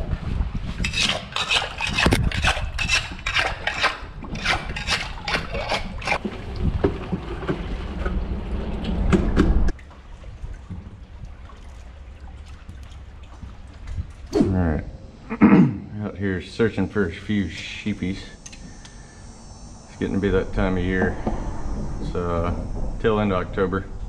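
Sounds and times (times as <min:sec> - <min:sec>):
water splashing and dribbling: 0:00.0 - 0:15.2.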